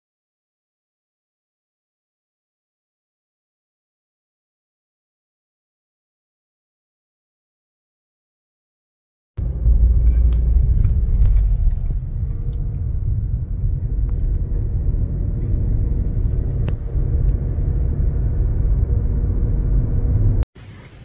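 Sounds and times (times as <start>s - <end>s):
car driving rumble: 9.4s - 21.0s.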